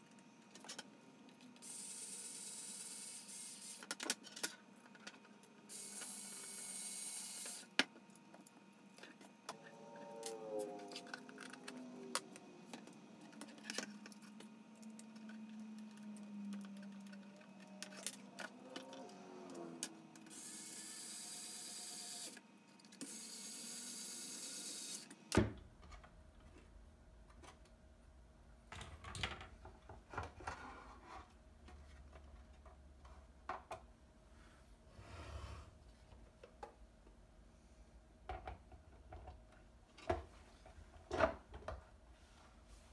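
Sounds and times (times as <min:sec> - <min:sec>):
electric screwdriver whirring: 0:05.7 - 0:07.7, 0:20.2 - 0:22.4, 0:23.0 - 0:25.1.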